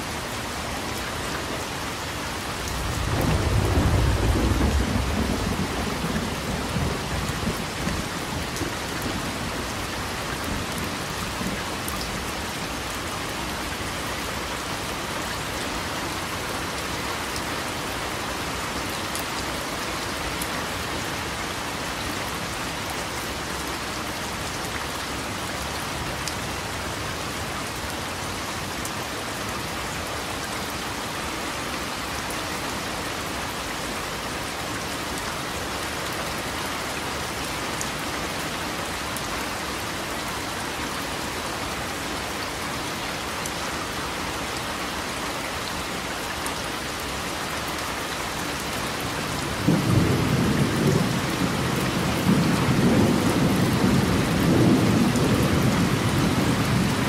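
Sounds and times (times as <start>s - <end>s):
steady rain falling: 0.0s - 57.0s
low rumble of thunder: 2.9s - 9.5s, 49.4s - 57.0s.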